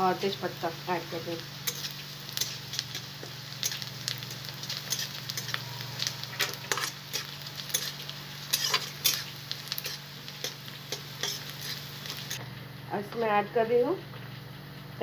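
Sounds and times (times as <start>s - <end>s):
onions sizzling in oil: 0.0s - 15.0s
metal spatula scraping a pan: 1.6s - 12.4s.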